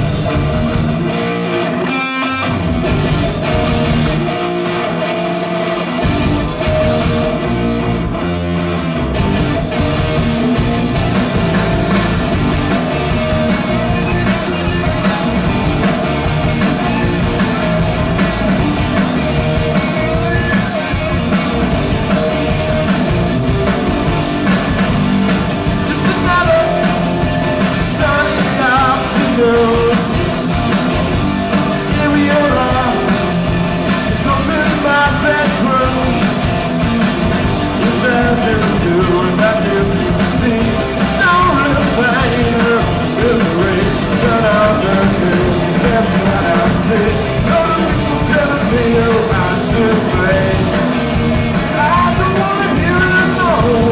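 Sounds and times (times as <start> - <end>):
rock band playing: 0.0 - 53.9
man singing: 25.7 - 30.4, 31.5 - 33.3, 33.9 - 36.5, 37.6 - 51.0, 51.6 - 53.9.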